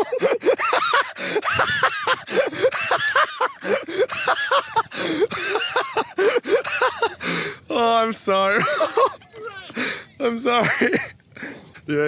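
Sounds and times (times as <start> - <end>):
person laughing hard: 0.0 - 7.3, 8.6 - 9.2
gasping breaths: 1.1 - 1.5, 4.8 - 5.5, 7.2 - 7.7, 9.7 - 10.1, 11.3 - 11.8.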